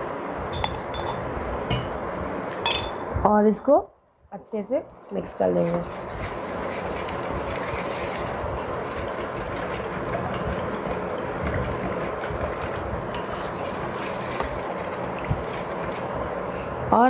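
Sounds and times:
wooden churner sloshing in bowl: 5.6 - 16.2.

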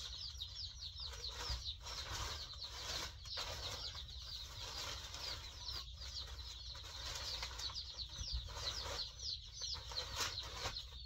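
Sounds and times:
chicks peeping: 0.0 - 11.0.

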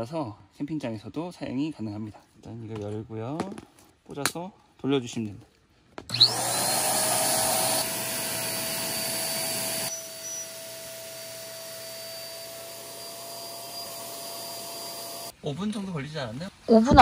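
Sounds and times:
electric air pump whining: 6.1 - 15.3.

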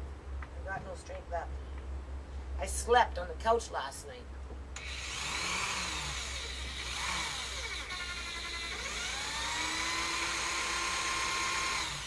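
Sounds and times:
electric drill running: 4.8 - 12.0.

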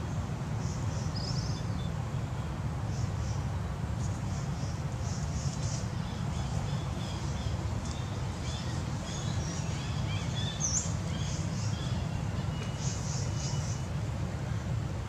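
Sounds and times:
small birds chirping: 4.0 - 14.6.

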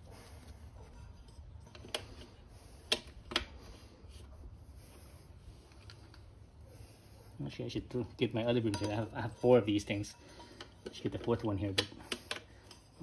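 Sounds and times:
faint steady background: 0.0 - 13.0.

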